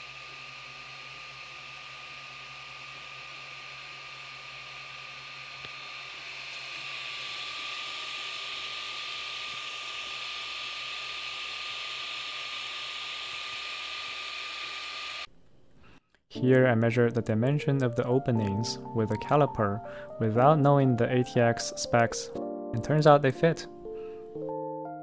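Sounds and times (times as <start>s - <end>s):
constant high whine: 0.0s - 16.0s
cooling fans whirring: 0.0s - 16.0s.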